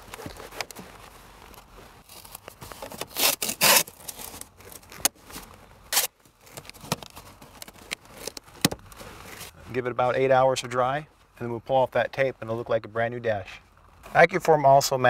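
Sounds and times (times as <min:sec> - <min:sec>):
masking tape tearing and rubbing: 0:02.0 - 0:09.5.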